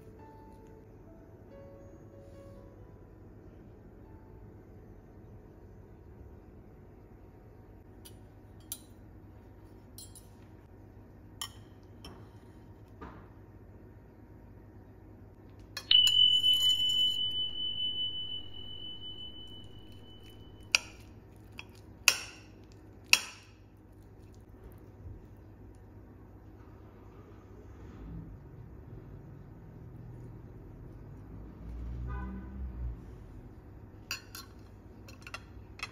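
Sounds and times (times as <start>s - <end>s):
cutlery clinking on ceramic plate: 34.1s - 35.9s.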